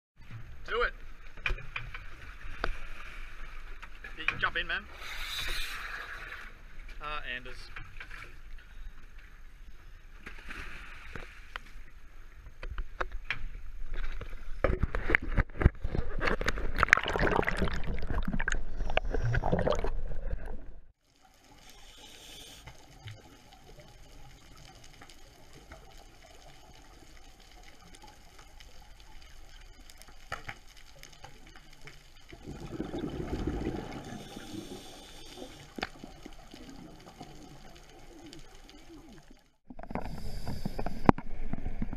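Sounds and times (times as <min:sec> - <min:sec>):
muffled underwater hiss: 0:04.8 - 0:06.8, 0:21.1 - 0:41.9
low underwater rushing: 0:13.5 - 0:22.3, 0:22.9 - 0:41.9
sea water splashing: 0:14.2 - 0:41.9.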